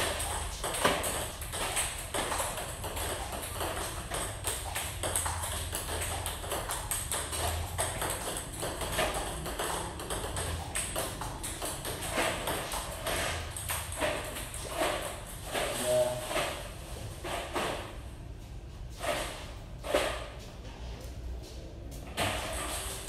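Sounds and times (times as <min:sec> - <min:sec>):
table tennis balls clicking: 0:00.0 - 0:16.5.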